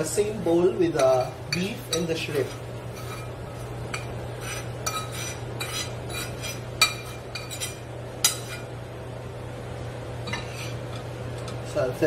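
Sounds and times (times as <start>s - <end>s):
steady low hum: 0.0s - 12.0s
utensil clinking against bowl and pan: 0.8s - 8.7s.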